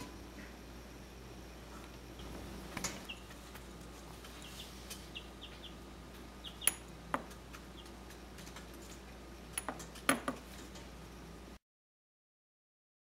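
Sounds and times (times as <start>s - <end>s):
chicks peeping: 3.0s - 8.5s.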